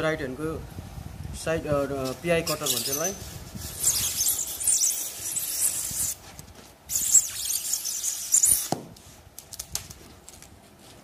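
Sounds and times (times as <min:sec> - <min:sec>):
short squeak falling in pitch: 0:06.9 - 0:08.8.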